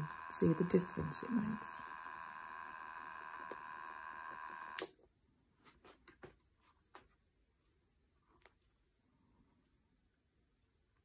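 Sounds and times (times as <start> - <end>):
spinning wheel motor whine: 0.0 - 4.9.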